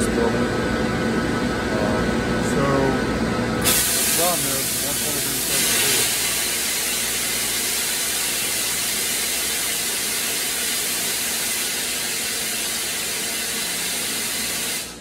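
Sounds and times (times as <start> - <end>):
equipment venting hiss: 3.6 - 15.0.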